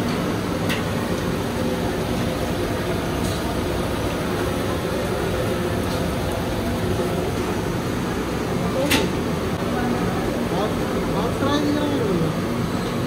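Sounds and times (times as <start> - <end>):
gas stove burner: 0.0 - 9.3
food deep-frying in oil: 0.0 - 13.0.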